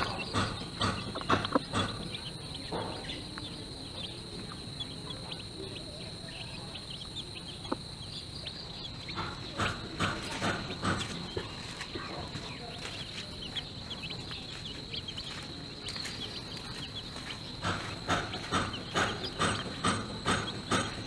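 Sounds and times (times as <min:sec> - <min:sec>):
chicks peeping: 0:00.0 - 0:21.0
hen clucking: 0:00.0 - 0:21.0.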